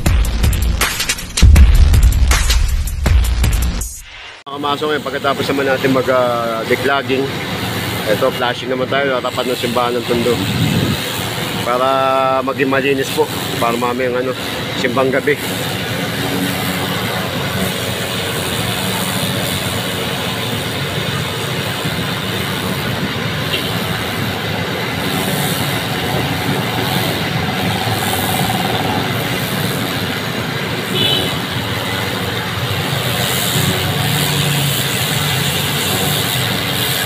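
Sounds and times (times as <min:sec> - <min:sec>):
pressure washer water jet hissing: 0:04.7 - 0:37.0
engine running: 0:12.6 - 0:37.0.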